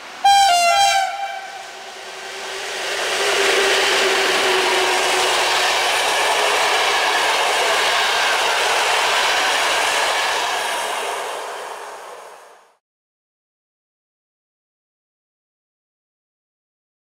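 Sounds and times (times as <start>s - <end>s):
train wheels rushing on rails: 0.0s - 12.8s.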